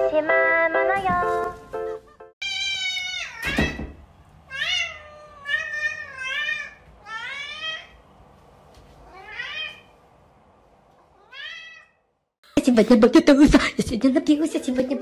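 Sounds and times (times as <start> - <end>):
cat meowing: 2.4 - 3.8, 4.5 - 8.0, 9.0 - 9.9, 11.0 - 12.1.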